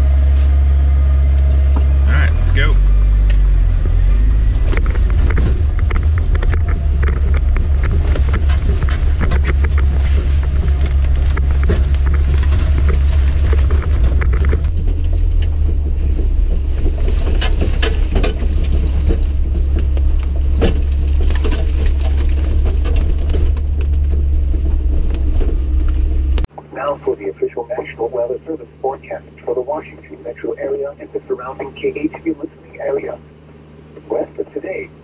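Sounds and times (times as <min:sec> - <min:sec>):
car engine and tyres rumbling: 0:00.0 - 0:35.0
clicks and rattles: 0:04.7 - 0:26.5.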